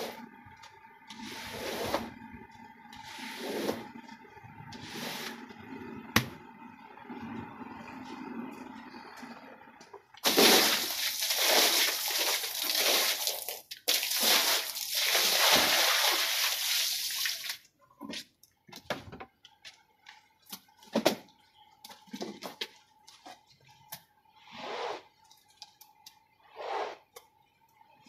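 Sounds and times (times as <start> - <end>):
water splashing onto rug: 10.2 - 17.6.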